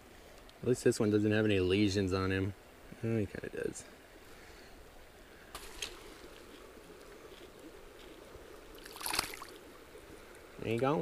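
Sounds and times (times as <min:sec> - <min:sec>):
faint flowing river water: 0:00.0 - 0:11.0
fish splash in water: 0:08.8 - 0:09.6.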